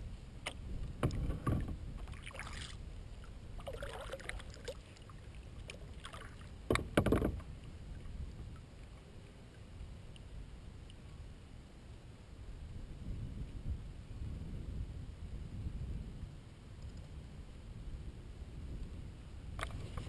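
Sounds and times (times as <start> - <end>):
paddle swishing through water: 0.4 - 10.0, 19.6 - 20.0
knocking and splashing: 1.0 - 1.8, 6.6 - 7.5.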